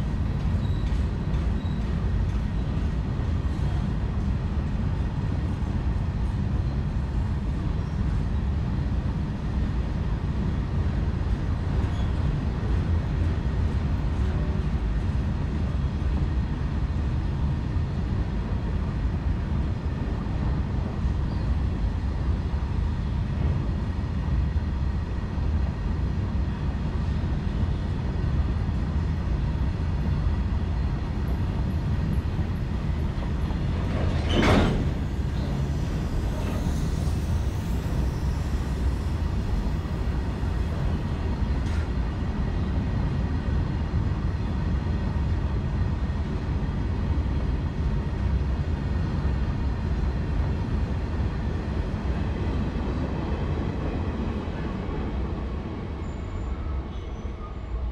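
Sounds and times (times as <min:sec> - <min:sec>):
freight wagons rolling on rails: 0:31.3 - 0:41.9.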